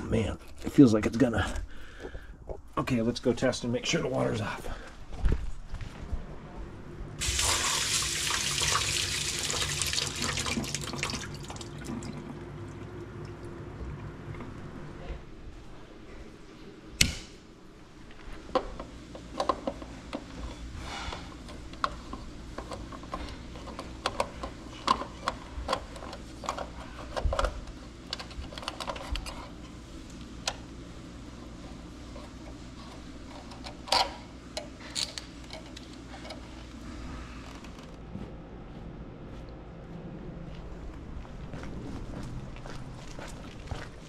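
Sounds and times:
circuit breaker click: 0:17.0 - 0:17.4
small clicks and metal taps: 0:21.5 - 0:29.4.

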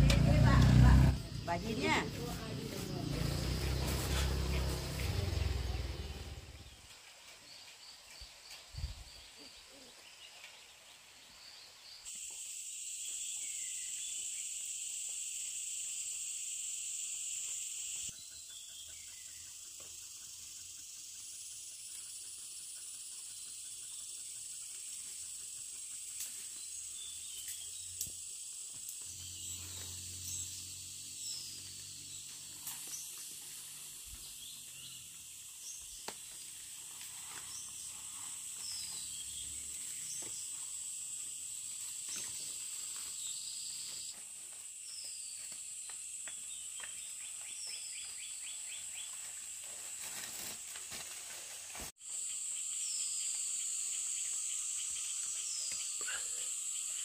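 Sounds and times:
high-pitched insect drone: 0:12.1 - 0:44.2, 0:52.0 - 0:57.0.

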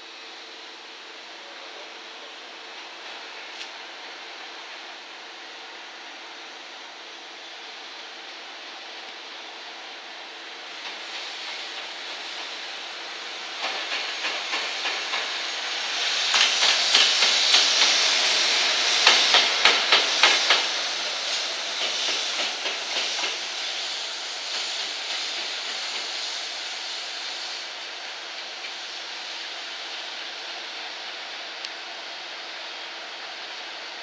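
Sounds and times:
locomotive hiss: 0:00.0 - 0:34.0
train wheels clacking over rail joints: 0:10.8 - 0:26.4.

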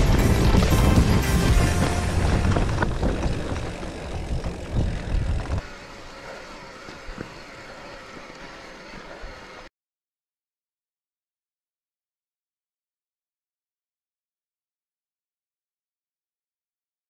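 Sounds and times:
wind rushing on microphone: 0:00.0 - 0:05.6
bike frame rattling and knocking: 0:00.0 - 0:08.5.

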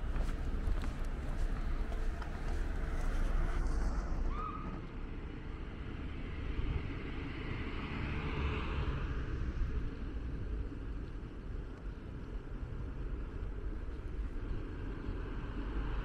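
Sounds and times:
vehicle passing: 0:00.0 - 0:05.0
street traffic: 0:00.0 - 0:16.0
wind rumbling on microphone: 0:00.0 - 0:16.0.

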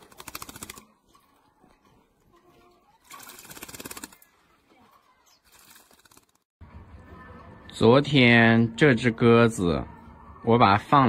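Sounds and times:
bird splashing wings in water: 0:00.0 - 0:00.9, 0:03.0 - 0:06.4.

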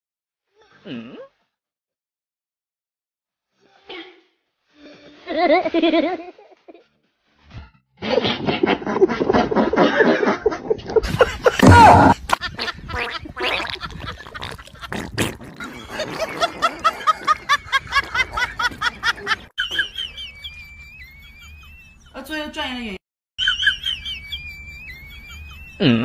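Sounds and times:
rapid gurgling vocal noises: 0:13.4 - 0:17.4
thin gliding whistle: 0:19.7 - 0:22.1, 0:23.4 - 0:25.9
short laugh-like calls: 0:25.0 - 0:26.0.

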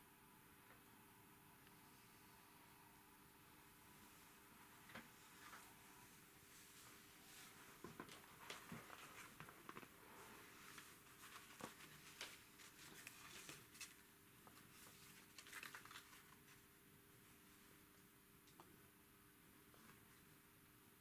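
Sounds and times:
faint clicks and rustles: 0:04.6 - 0:16.8.

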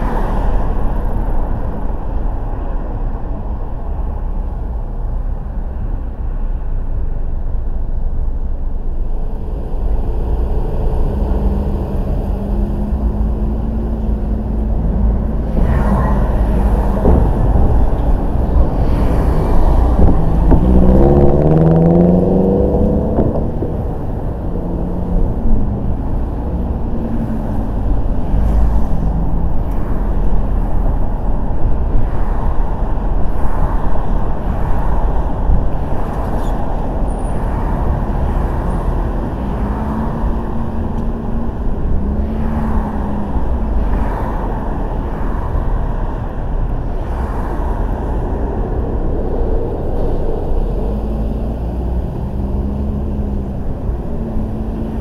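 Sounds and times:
low road rumble: 0:00.0 - 0:55.0
car engine accelerating: 0:09.4 - 0:29.9.

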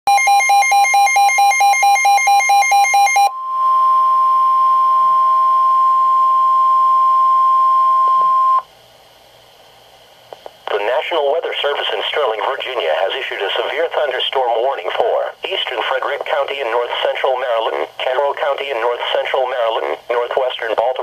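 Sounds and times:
steady alarm tone: 0:00.1 - 0:08.6.

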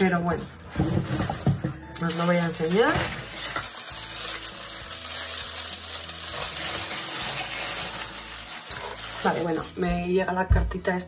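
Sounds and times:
tissue paper rustling: 0:02.1 - 0:09.9.

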